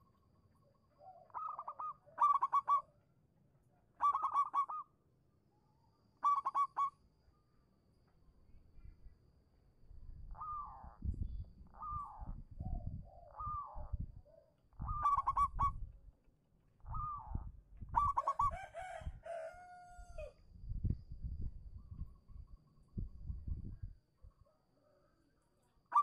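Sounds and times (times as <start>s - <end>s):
dove cooing: 1.0s - 2.9s, 4.0s - 4.8s, 10.3s - 11.0s, 11.8s - 15.8s, 16.9s - 19.5s.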